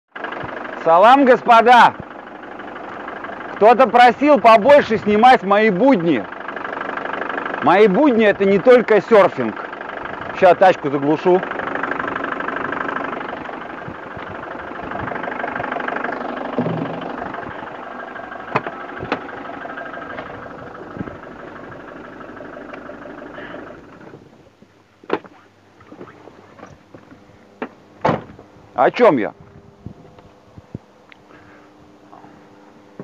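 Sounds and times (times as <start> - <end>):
van engine idling: 0.1 - 33.0
sharp clunk: 16.6 - 17.1, 27.6 - 28.4.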